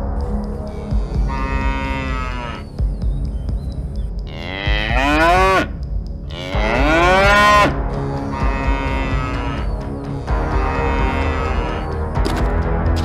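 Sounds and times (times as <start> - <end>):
cattle mooing: 1.2 - 2.7, 4.3 - 5.7, 6.3 - 9.8, 10.4 - 12.0.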